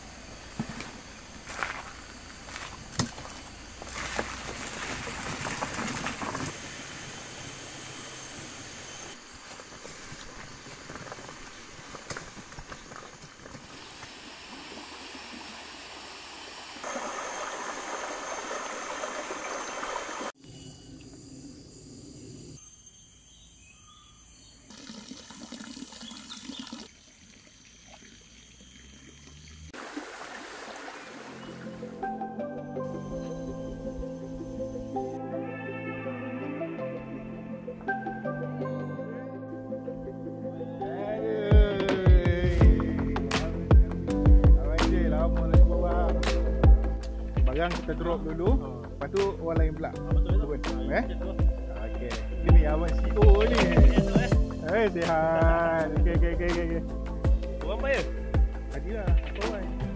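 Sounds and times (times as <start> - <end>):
outdoor hiss: 0.0 - 32.0
wheels rolling over gravel: 0.6 - 6.8
stream water rushing and trickling: 13.4 - 20.4, 24.7 - 32.2.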